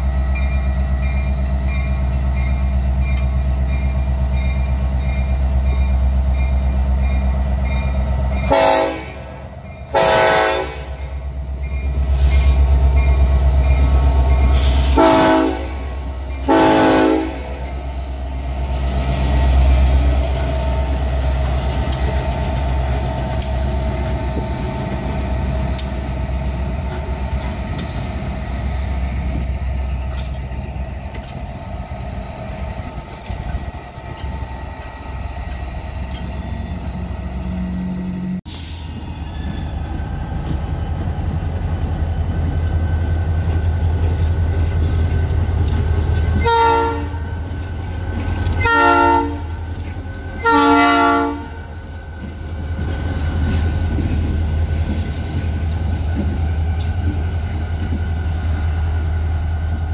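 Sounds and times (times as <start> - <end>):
diesel locomotive engines rumbling: 0.0 - 59.9
locomotive horn blasts: 8.4 - 11.1, 14.8 - 17.6, 46.4 - 47.3, 48.6 - 49.6, 50.4 - 51.7.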